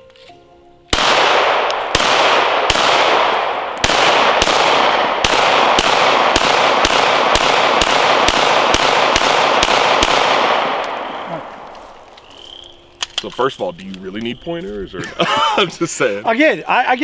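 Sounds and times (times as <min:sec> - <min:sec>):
pistol shots echoing: 0:00.9 - 0:13.2.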